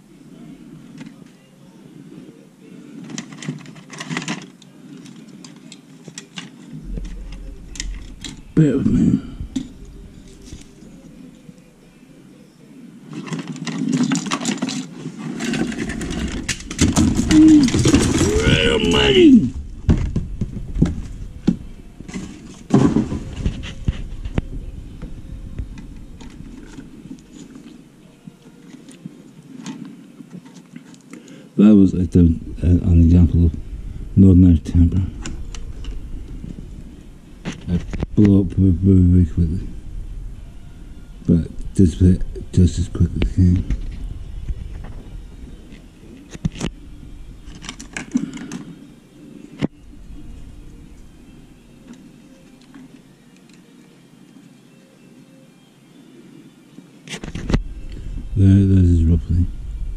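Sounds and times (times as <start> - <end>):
handling clicks and rustles: 3.0 - 8.8, 13.1 - 31.3, 41.4 - 53.7
handling clicks and knocks: 3.1 - 8.4, 13.1 - 18.7
steady low hum: 6.6 - 13.2, 15.4 - 54.2, 57.2 - 59.9.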